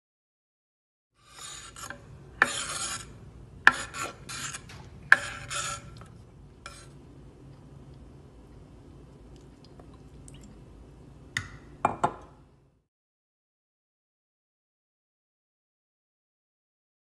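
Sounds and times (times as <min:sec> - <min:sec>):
knife scraping wooden cutting board: 0:01.2 - 0:06.9.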